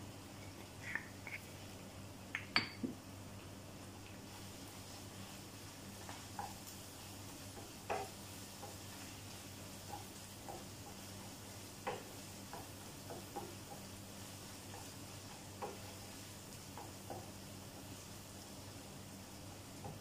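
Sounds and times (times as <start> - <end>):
faint meat sizzle: 3.0 - 20.0.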